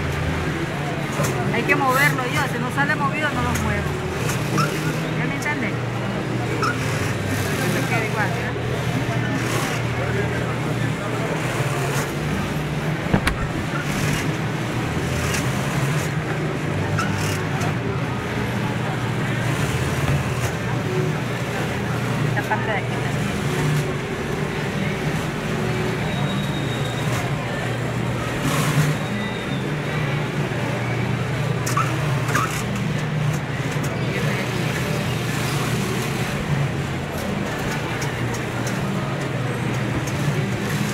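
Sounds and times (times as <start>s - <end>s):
workshop machinery humming: 0.0s - 40.9s
sharp knocks: 13.1s - 13.7s.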